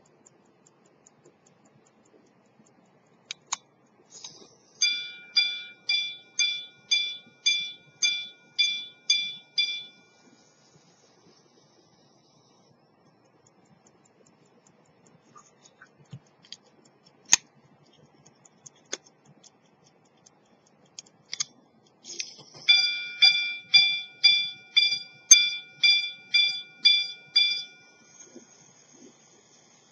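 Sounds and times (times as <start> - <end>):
watch mechanism whirring: 0.0 - 29.9
bell-like chime strikes: 22.7 - 28.0.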